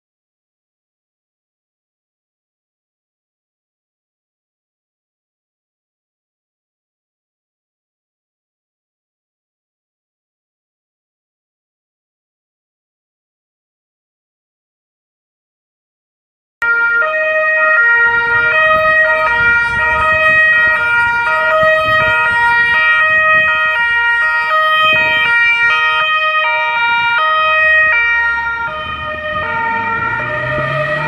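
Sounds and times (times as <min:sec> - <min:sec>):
two-tone police siren: 0:16.6 - 0:31.0.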